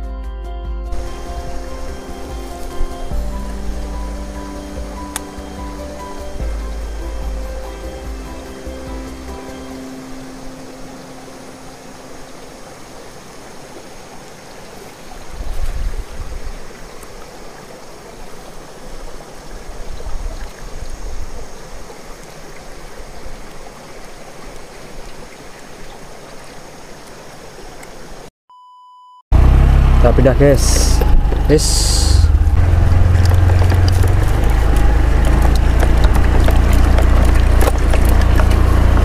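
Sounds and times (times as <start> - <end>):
low rumbles: 0.9 - 9.6, 29.3 - 39.0
stream running over stones: 1.0 - 28.3, 30.4 - 39.0
electronic beep tone: 28.5 - 29.2.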